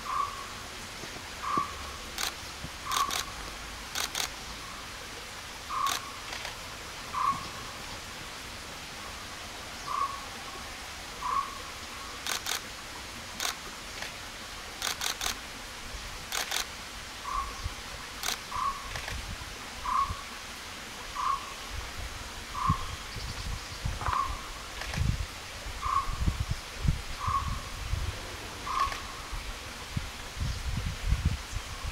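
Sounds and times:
camera shutter clicks: 2.2s - 3.3s, 3.9s - 4.4s, 5.8s - 6.6s, 12.2s - 12.6s, 13.4s - 14.2s, 14.8s - 15.4s, 16.3s - 16.7s, 18.2s - 19.2s.

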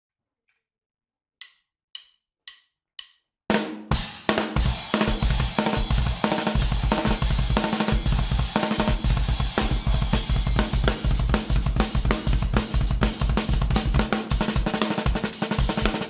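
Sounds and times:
fast drum solo: 3.5s - 16.0s.

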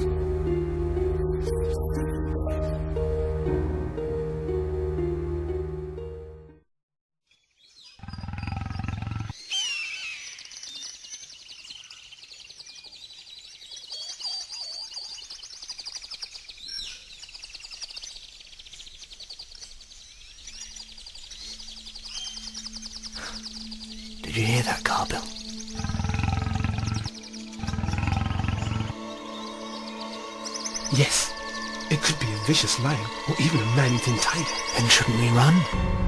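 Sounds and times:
birds chirping: 7.3s - 35.9s
big cat roaring: 25.8s - 29.0s.

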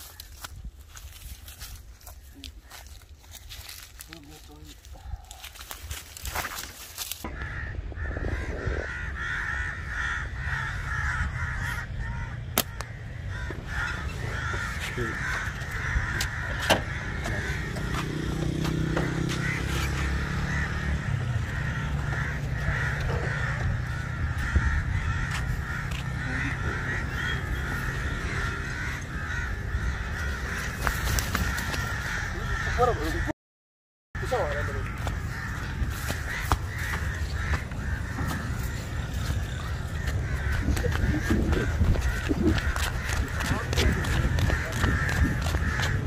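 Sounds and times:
crows cawing: 0.0s - 33.3s, 34.2s - 46.0s.

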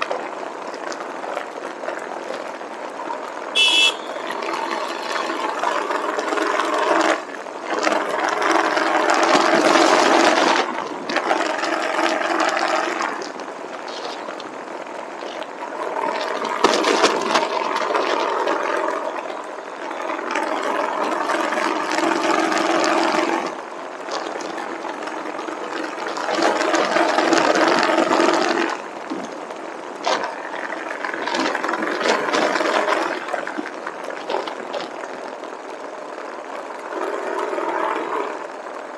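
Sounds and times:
wind noise on microphone: 0.0s - 38.9s
motorcycle engine running: 3.0s - 10.7s.

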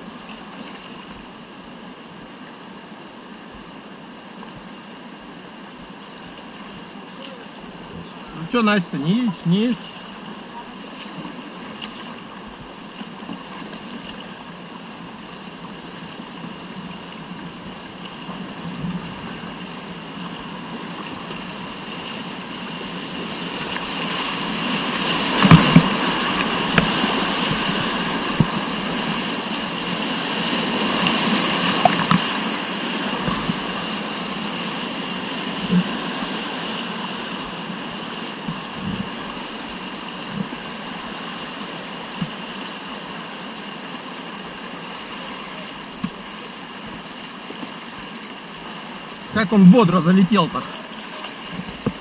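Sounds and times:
whitewater rushing: 0.0s - 52.0s
sharp knocks or splashes: 25.1s - 28.9s, 31.0s - 32.5s.

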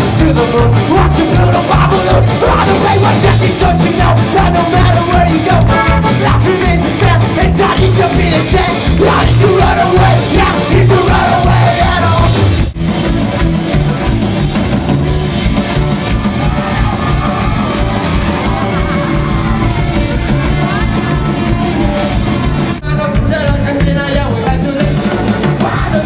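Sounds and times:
person singing: 0.0s - 12.4s, 17.6s - 26.0s
guitar: 0.0s - 26.0s
steady drum beat: 0.0s - 26.0s.

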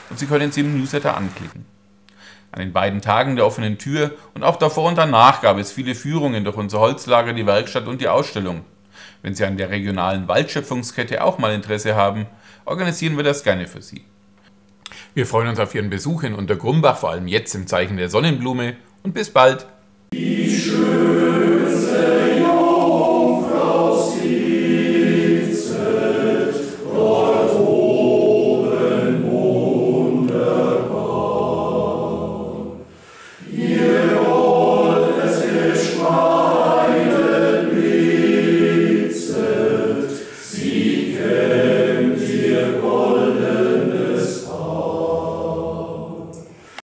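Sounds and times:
mixed choir singing: 20.1s - 46.8s.

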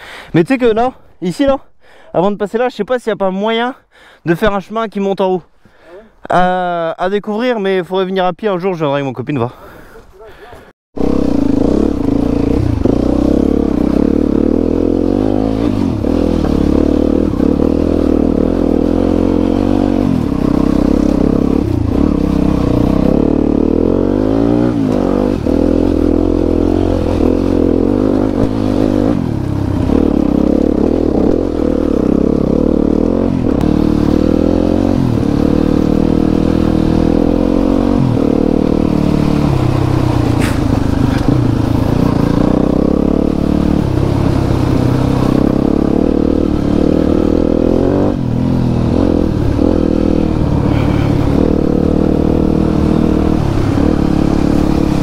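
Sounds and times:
dirt bike engine revving: 11.0s - 55.0s.

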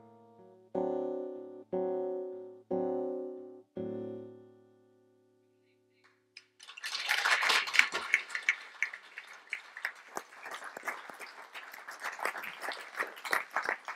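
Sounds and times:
audience applauding: 6.4s - 13.9s.

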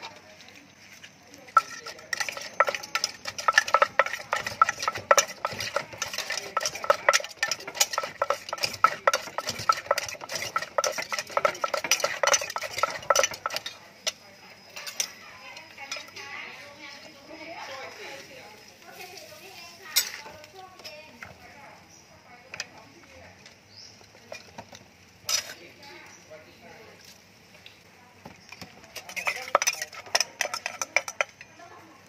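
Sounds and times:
metal utensil clinking and scraping: 0.9s - 16.4s, 19.0s - 21.1s, 24.2s - 25.7s, 28.5s - 31.8s
wooden pestle pounding in mortar: 1.6s - 13.7s.

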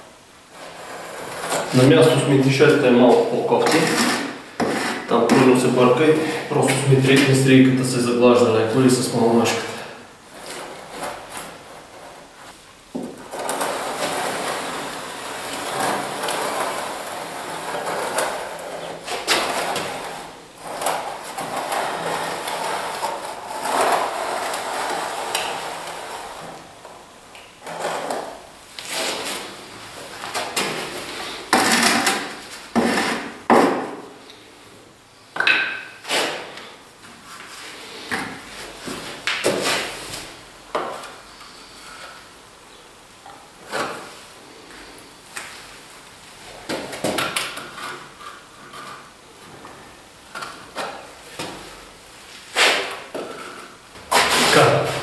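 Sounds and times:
trowel scraping wet plaster: 3.1s - 7.4s, 13.4s - 26.6s, 30.5s - 33.4s, 52.5s - 55.0s.

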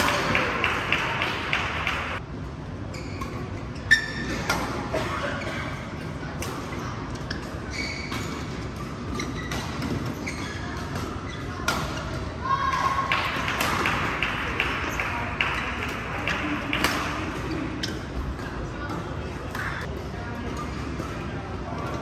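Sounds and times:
shoes squeaking on floor: 2.9s - 4.5s, 7.2s - 11.6s.

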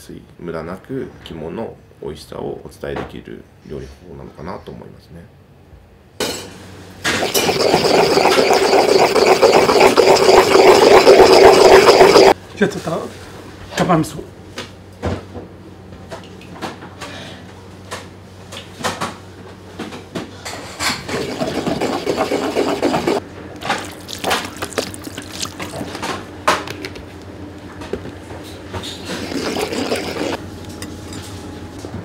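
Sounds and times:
pestle squishing wet paste: 7.1s - 12.4s, 21.0s - 26.0s, 29.0s - 30.4s.

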